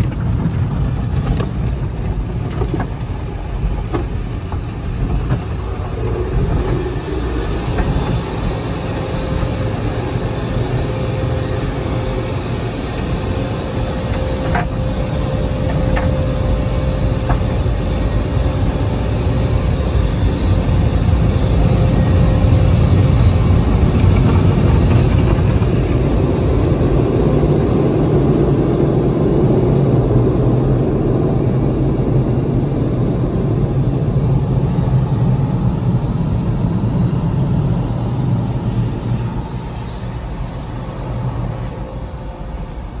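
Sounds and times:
dryer blowers rushing air: 0:00.0 - 0:43.0.

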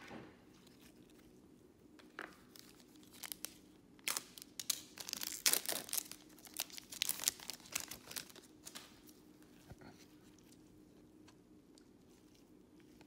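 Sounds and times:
foil wrapper tearing and crinkling: 0:02.5 - 0:09.0.

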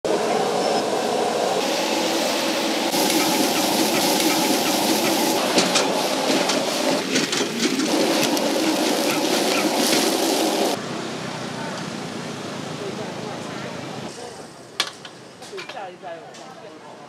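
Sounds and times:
wok sizzling over gas burner: 0:00.1 - 0:10.9.

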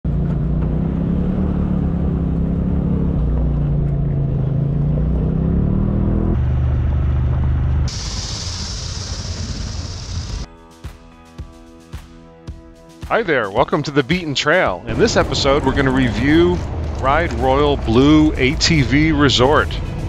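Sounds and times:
off-road vehicle engine: 0:00.0 - 0:10.5, 0:14.9 - 0:20.0
pressure washer spraying: 0:07.9 - 0:10.5.

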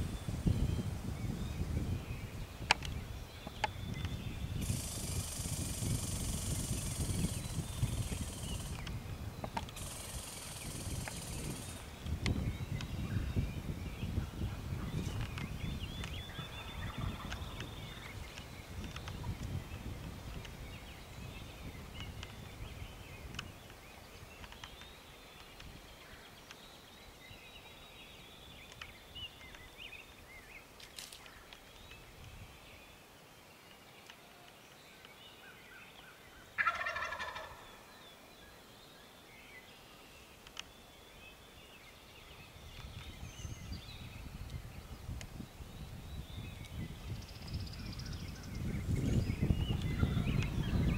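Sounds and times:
small birds chirping: 0:00.0 - 0:50.9
turkey gobbling: 0:36.6 - 0:37.6.

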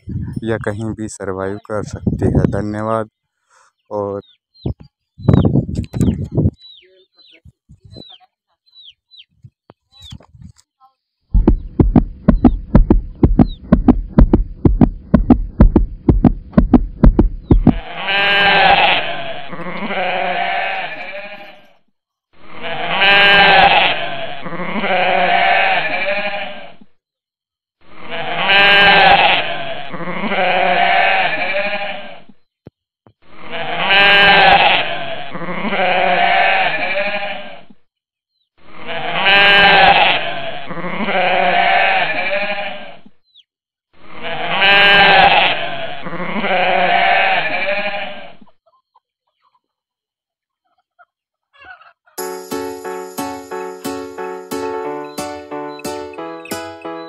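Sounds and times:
goat bleating: 0:17.6 - 0:21.7, 0:22.6 - 0:26.8, 0:28.0 - 0:32.2, 0:33.4 - 0:37.6, 0:38.8 - 0:43.0, 0:44.2 - 0:48.3.

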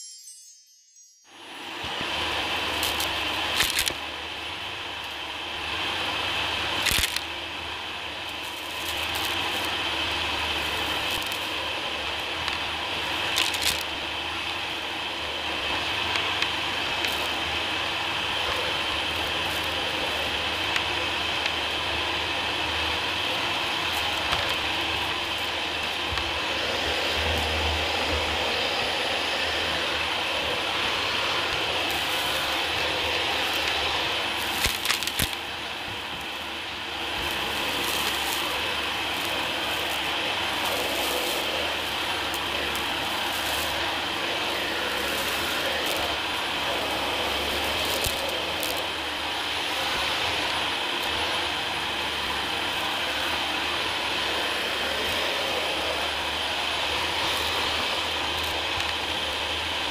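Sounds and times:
vacuum cleaner whine: 0:00.0 - 0:59.9
debris rattling through nozzle: 0:02.7 - 0:04.0, 0:06.8 - 0:07.2, 0:08.3 - 0:09.8, 0:13.2 - 0:13.9, 0:31.5 - 0:35.5, 0:37.0 - 0:49.0.

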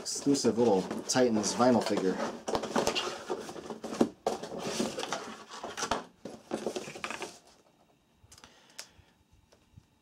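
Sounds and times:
packaging rustling and scraping: 0:00.0 - 0:07.7.

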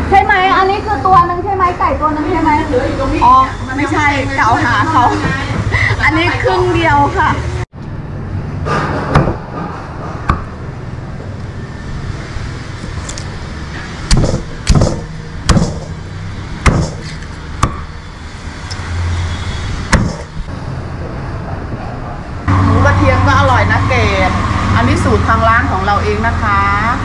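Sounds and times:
steady background noise: 0:00.0 - 0:27.0
cleaver chopping on wooden block: 0:14.1 - 0:16.0, 0:16.6 - 0:17.9, 0:19.9 - 0:20.3.

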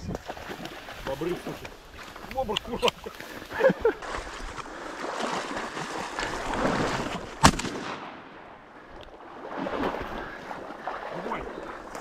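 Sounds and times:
wading through reeds and water: 0:00.0 - 0:12.0
shotgun shot: 0:07.4 - 0:08.3.

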